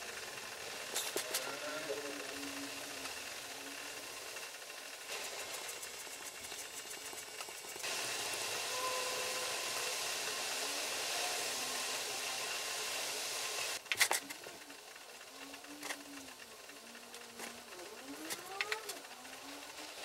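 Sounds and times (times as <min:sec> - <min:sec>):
steady hiss: 0:00.0 - 0:20.0
pen nib scratching wood: 0:05.1 - 0:07.8.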